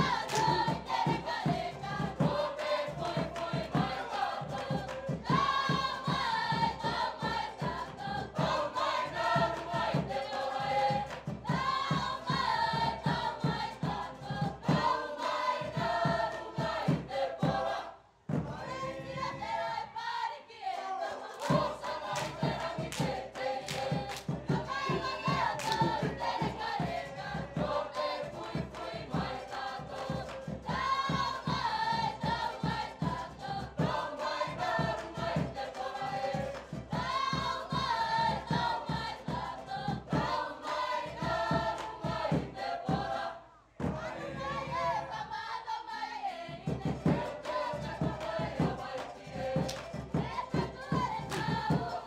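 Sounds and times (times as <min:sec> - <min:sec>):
mixed choir singing in harmony: 0:00.0 - 0:52.0.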